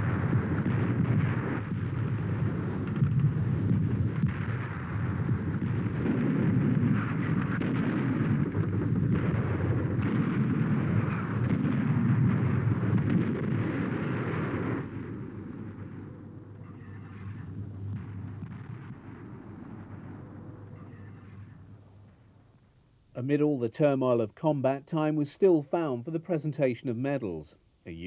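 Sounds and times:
continuous gunfire: 0:00.0 - 0:21.6
artillery explosions: 0:00.0 - 0:22.7.

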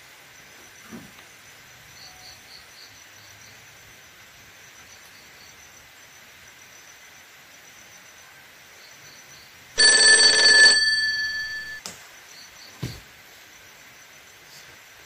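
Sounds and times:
insect chirps: 0:00.3 - 0:09.6.

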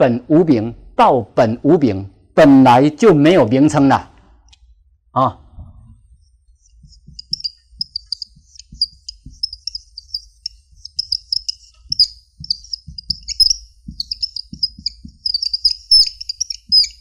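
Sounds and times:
marker squeaking on whiteboard: 0:06.0 - 0:17.0
marker tip knocking on board: 0:11.8 - 0:15.2.

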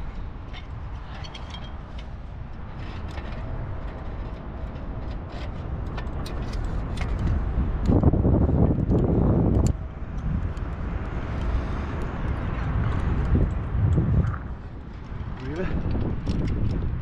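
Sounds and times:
metal climbing gear clinking: 0:00.0 - 0:10.7, 0:11.3 - 0:17.0
wind rumbling on microphone: 0:00.0 - 0:17.0.

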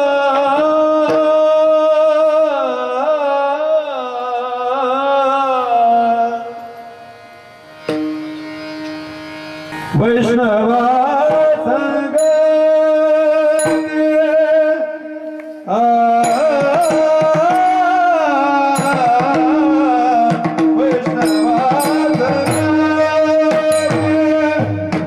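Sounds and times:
instrumental drone: 0:05.5 - 0:20.1, 0:21.0 - 0:25.0.

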